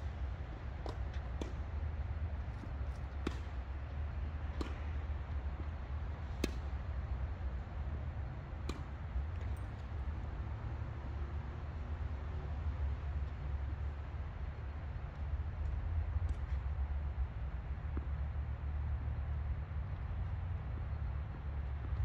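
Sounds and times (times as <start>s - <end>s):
tennis ball hits and bounces: 0.7s - 1.8s, 2.5s - 3.8s, 4.5s - 5.4s, 6.3s - 7.0s, 8.6s - 10.2s
steady low rumble: 3.6s - 22.0s.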